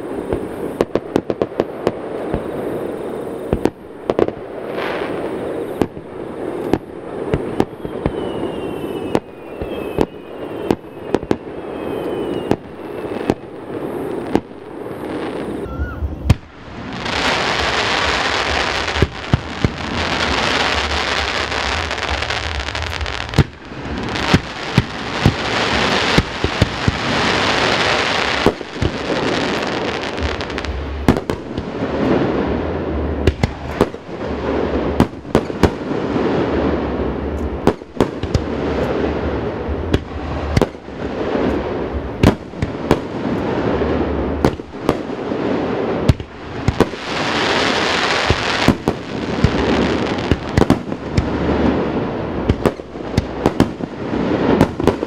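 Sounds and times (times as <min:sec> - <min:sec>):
fireworks crackling hiss: 0:00.0 - 0:55.0
firework shells bursting: 0:16.3 - 0:31.8.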